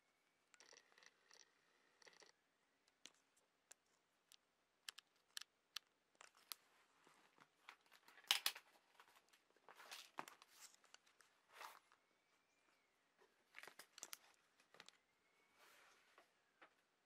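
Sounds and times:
camera handling rustling and scraping: 7.6 - 11.8.

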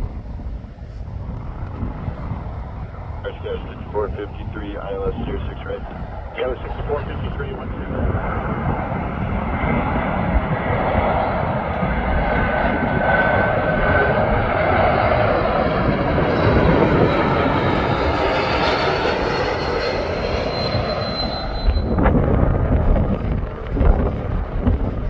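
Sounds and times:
high engine whine: 0.0 - 25.0
jet engine rumble: 0.0 - 25.0.

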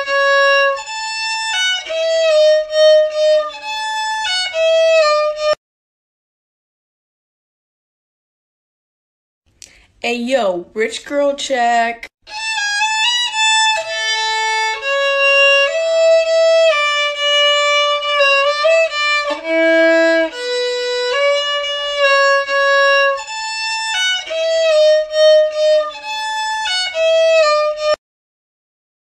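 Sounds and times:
violin melody: 0.0 - 5.6, 12.2 - 28.0.

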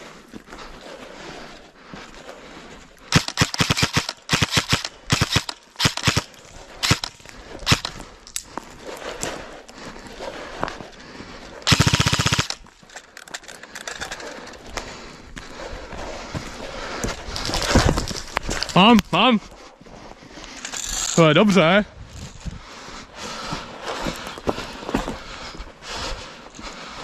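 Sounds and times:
airsoft guns firing: 3.1 - 7.9, 11.7 - 12.6.

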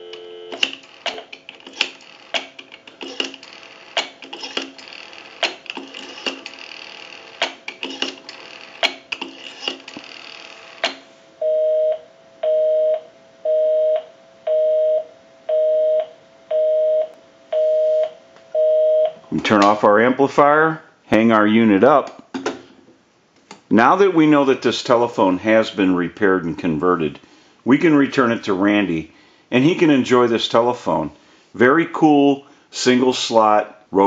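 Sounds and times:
two-tone busy signal beep: 0.0 - 0.6, 11.4 - 19.2.

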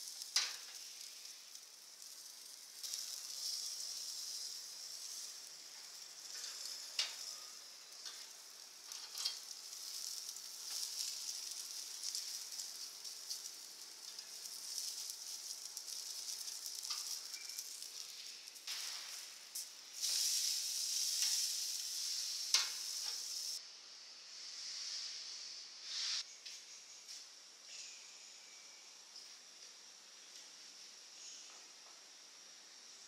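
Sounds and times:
meat sizzling on a grill: 0.0 - 23.6.

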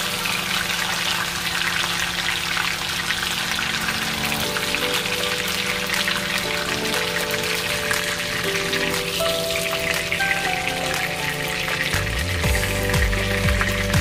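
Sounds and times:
background music: 0.0 - 14.0
chicken sizzling in a wok: 0.0 - 14.0.

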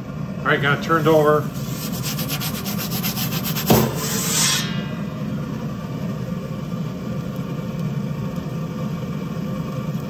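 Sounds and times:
gas burner running: 0.0 - 10.0
metal peel scraping oven stone: 1.0 - 5.5.

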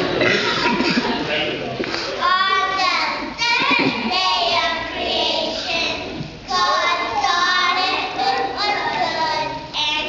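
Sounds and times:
young children singing together: 2.1 - 10.0.

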